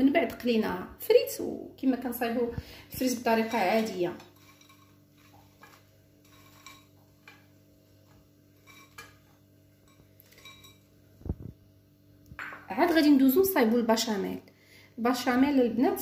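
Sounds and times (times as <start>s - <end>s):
utensil clinking against dish: 3.4s - 7.5s, 8.6s - 10.9s.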